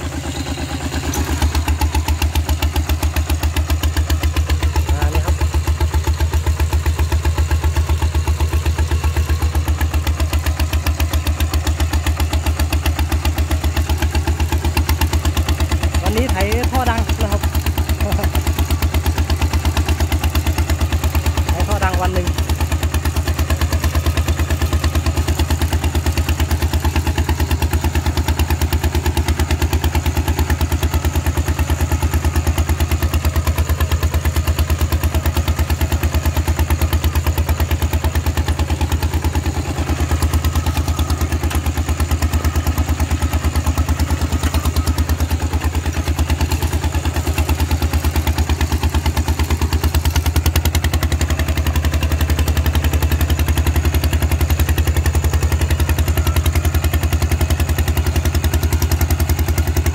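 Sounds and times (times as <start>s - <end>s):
diesel engine popping: 0.0s - 59.9s.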